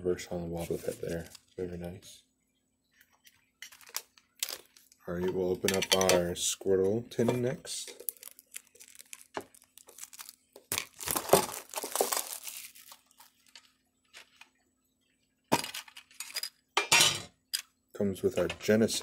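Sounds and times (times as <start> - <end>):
rustling: 7.8 - 14.6.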